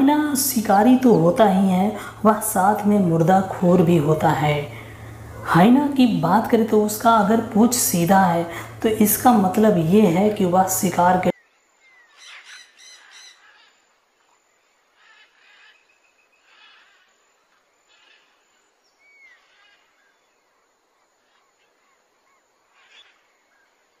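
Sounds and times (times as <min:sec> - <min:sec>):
bird calls: 0:11.3 - 0:24.0.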